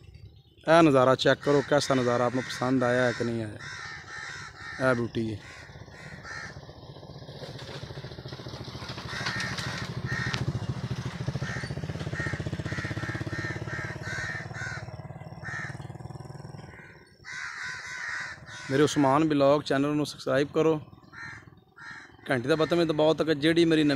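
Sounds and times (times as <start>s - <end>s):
crows cawing: 1.3s - 7.0s, 8.8s - 19.3s, 20.9s - 23.2s
small engine droning: 1.6s - 19.0s, 20.8s - 23.9s.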